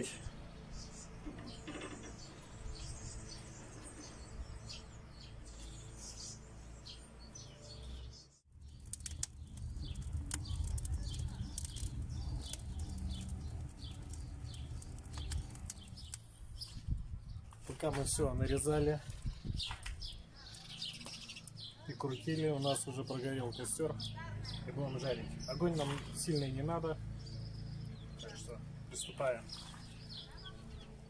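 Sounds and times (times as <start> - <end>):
small birds chirping: 0.0 - 31.0
low rumble of fire: 8.4 - 21.8
wood fire crackling and popping: 8.5 - 16.4, 17.6 - 21.6.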